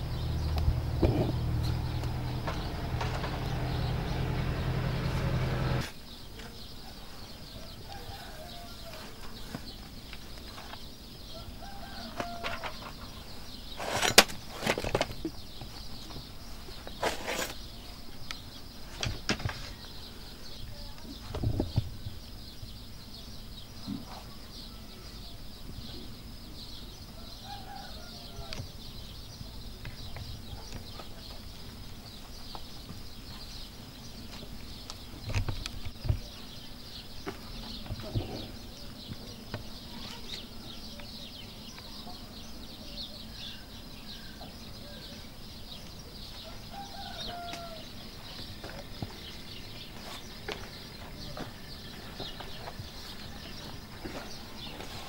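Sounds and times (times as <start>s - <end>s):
loud hum with low drone: 0.0s - 5.9s.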